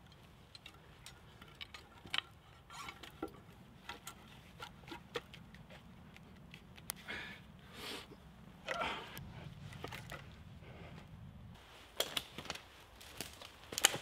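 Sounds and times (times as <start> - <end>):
wooden poles knocking together: 0.1 - 6.9.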